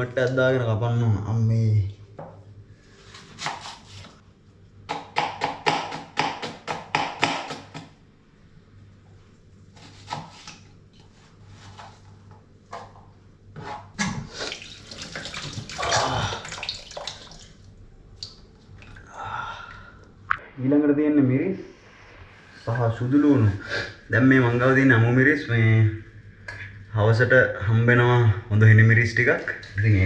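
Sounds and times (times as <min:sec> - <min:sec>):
knife chopping onion on plastic board: 0:04.9 - 0:07.9
rushing noise: 0:20.4 - 0:26.4.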